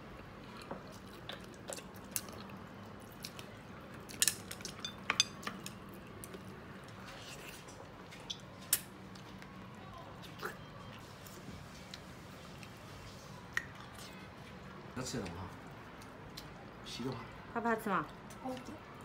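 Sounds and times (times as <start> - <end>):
wet eating smacks and clicks: 13.4 - 16.6.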